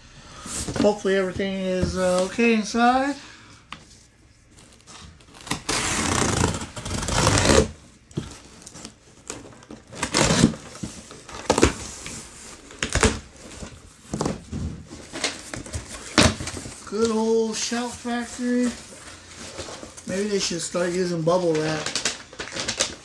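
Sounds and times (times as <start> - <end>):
cardboard scraping: 4.6 - 21.0
packing tape ripping: 4.7 - 11.8, 21.5 - 23.0.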